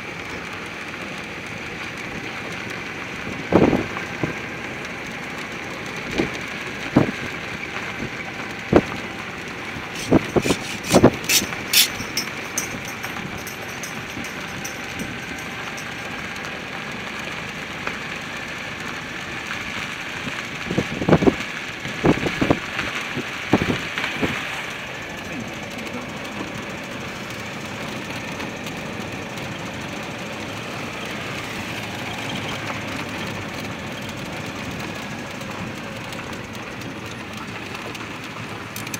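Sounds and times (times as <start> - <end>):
car engine running: 0.0 - 38.9
knocks and rattles: 9.8 - 16.6.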